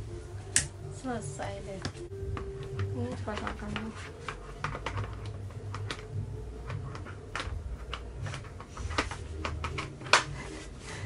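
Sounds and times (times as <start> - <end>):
plastic clicks and knocks: 1.8 - 10.4.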